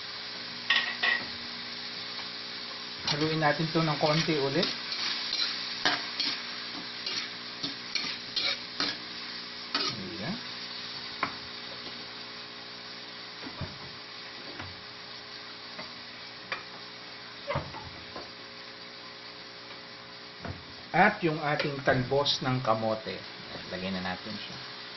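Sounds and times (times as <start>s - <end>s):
sauce sizzling in a wok: 0.0s - 24.9s
metal spatula scraping a pan: 4.1s - 9.0s, 9.7s - 10.0s.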